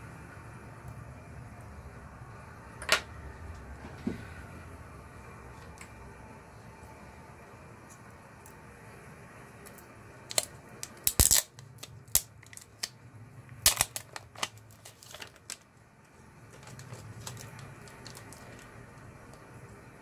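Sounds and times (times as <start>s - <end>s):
plastic film crinkling: 10.3s - 13.0s, 13.6s - 15.8s, 16.5s - 19.5s.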